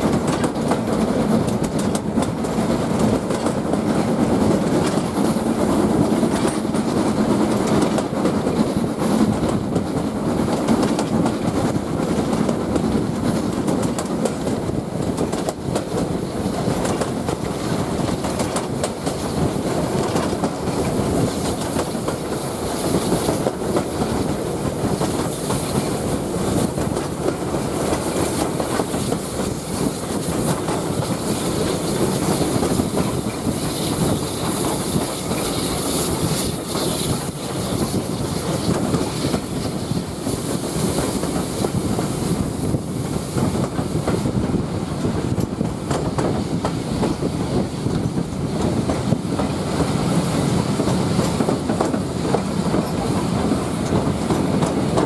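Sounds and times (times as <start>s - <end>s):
train wheels rumbling on rails: 0.0s - 55.0s
quick clicks from the track: 0.1s - 3.9s, 6.3s - 19.2s, 45.3s - 47.3s, 50.8s - 55.0s.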